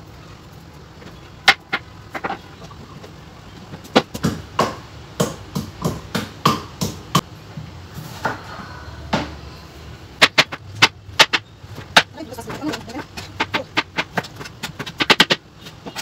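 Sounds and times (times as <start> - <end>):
knife chopping on plastic board: 10.2 - 16.0
pestle pounding in wooden mortar: 10.2 - 16.0.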